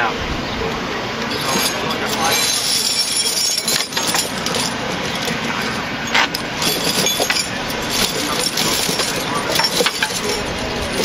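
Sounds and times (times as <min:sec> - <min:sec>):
chain links clinking and rattling: 0:01.2 - 0:11.0.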